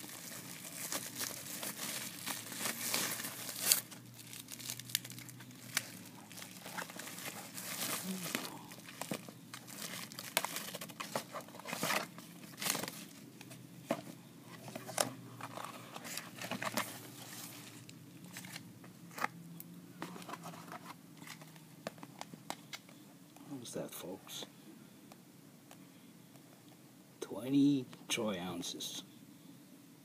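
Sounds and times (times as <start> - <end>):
plastic wrapping crinkling: 0.0 - 13.2.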